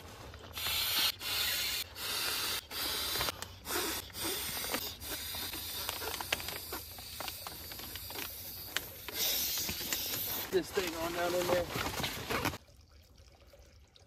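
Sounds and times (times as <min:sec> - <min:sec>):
air pump bursts: 0:00.5 - 0:10.8.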